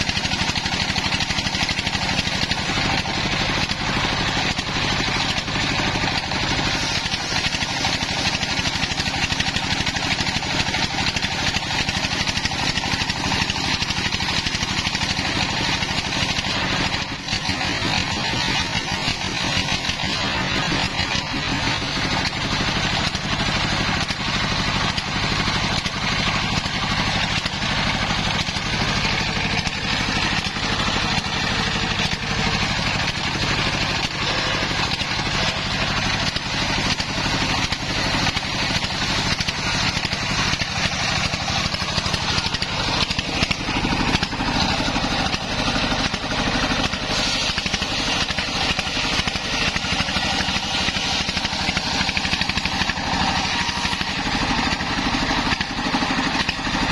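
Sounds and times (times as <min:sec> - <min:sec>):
saw blade cutting logs: 0:00.0 - 0:56.9
sawmill engine running: 0:00.0 - 0:56.9.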